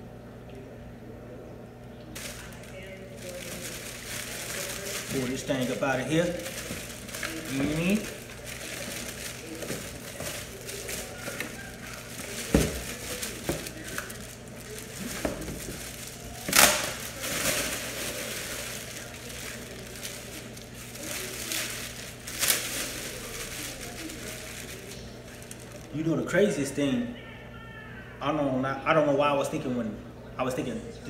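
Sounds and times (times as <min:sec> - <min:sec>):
plastic packaging crinkling: 0:02.1 - 0:26.6.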